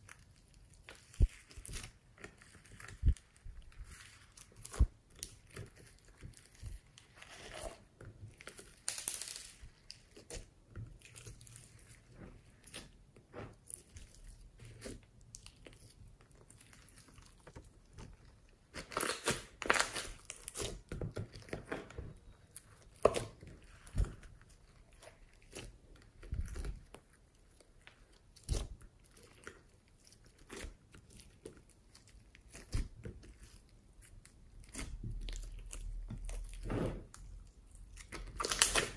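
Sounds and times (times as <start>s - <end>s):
slime crackling and popping: 0.0s - 7.2s, 8.3s - 13.0s, 13.6s - 21.7s, 22.3s - 38.9s.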